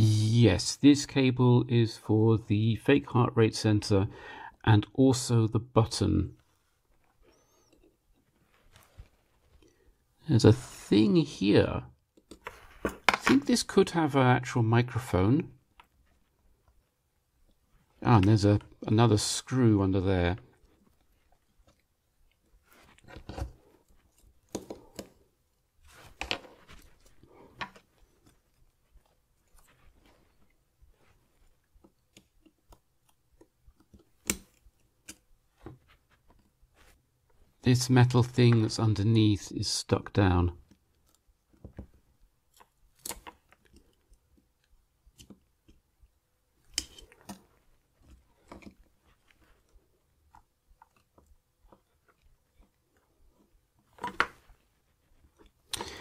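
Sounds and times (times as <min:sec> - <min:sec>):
small plastic clicks and rubbing: 0:25.9 - 0:36.6, 0:40.6 - 0:55.8
metal tweezers clicking and scraping: 0:46.6 - 0:47.4.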